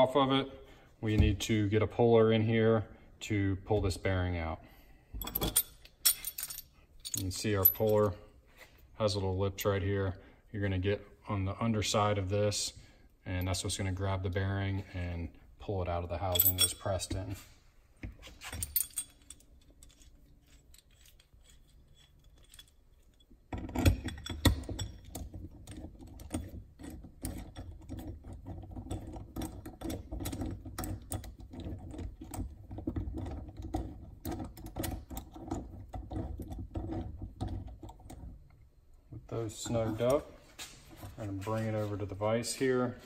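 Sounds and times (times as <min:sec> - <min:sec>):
metal bolts clicking and rattling: 0:05.2 - 0:08.2, 0:16.2 - 0:17.4, 0:18.0 - 0:41.7.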